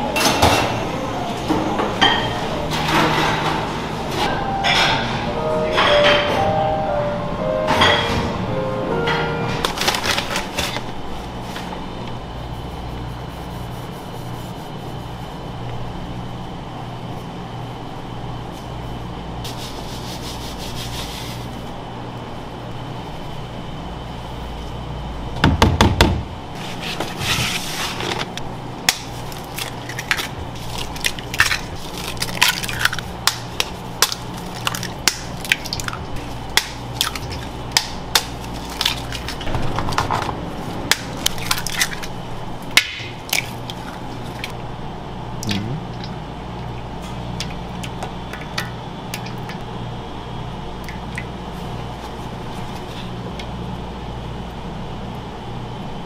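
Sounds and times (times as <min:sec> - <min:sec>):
steady low hum: 0:00.0 - 0:56.0
eggs cracking on metal bowl: 0:28.9 - 0:40.1.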